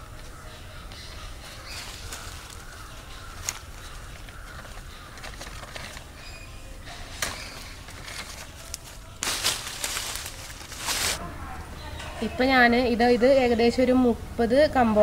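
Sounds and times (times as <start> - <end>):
leaves and stems rustling: 0.0 - 11.6.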